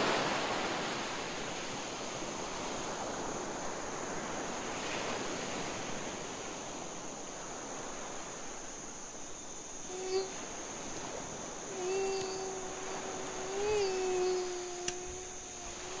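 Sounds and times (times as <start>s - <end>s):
thin high steady tone: 9.8s - 16.0s.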